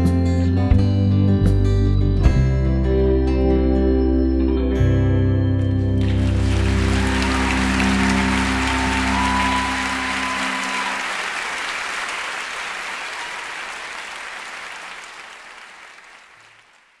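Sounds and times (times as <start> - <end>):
live song held notes: 0.0 - 16.4
audience applause: 6.0 - 17.0.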